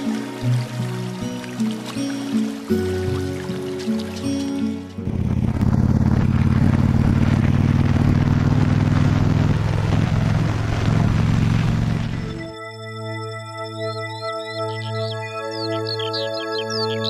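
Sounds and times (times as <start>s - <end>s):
road and wind noise: 3.4s - 12.5s
motorcycle engine running: 4.8s - 12.5s.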